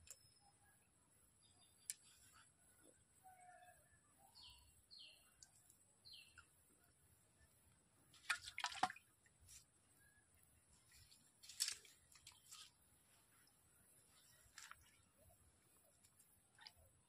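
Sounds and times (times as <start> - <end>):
faint bird chirps: 0.0 - 7.6.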